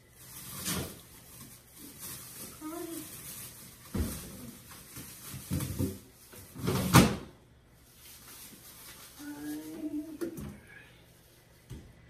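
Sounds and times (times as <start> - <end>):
knocks and clatters in refrigerator: 3.8 - 4.4, 5.1 - 7.3.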